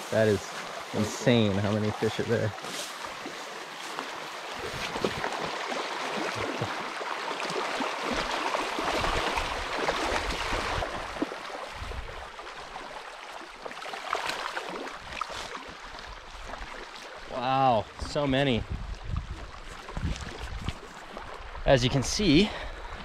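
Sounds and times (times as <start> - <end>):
stream rushing over rocks: 0.0 - 13.0
wind rumble on microphone: 18.0 - 20.9.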